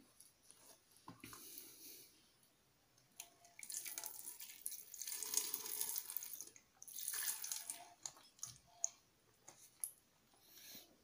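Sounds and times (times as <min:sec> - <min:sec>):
milk pouring and splashing: 0:03.4 - 0:09.0.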